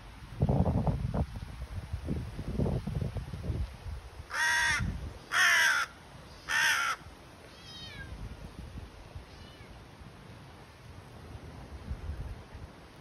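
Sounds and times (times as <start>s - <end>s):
crow cawing: 4.3s - 7.1s.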